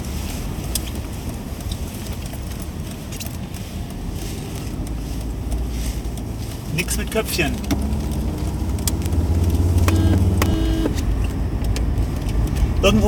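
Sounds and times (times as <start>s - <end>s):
car engine and road rumble: 0.0s - 13.0s
faint clicks and rattles: 0.1s - 9.9s.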